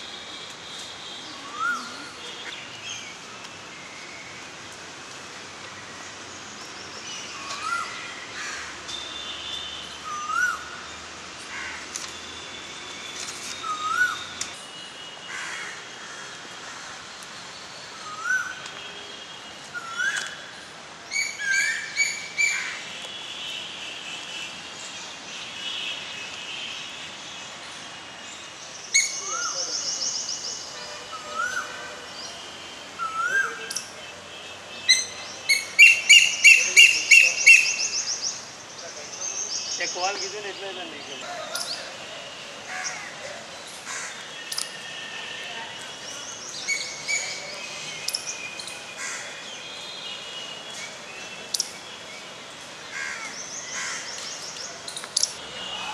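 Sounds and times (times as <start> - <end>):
birds chirping: 21.1 - 55.9.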